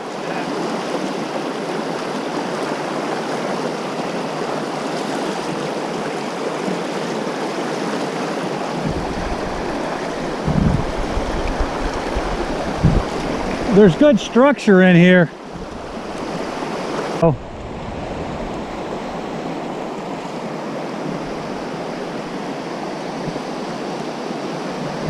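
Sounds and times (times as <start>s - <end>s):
river rushing over riffles: 0.0s - 25.0s
low rumble with thumps: 8.8s - 13.8s.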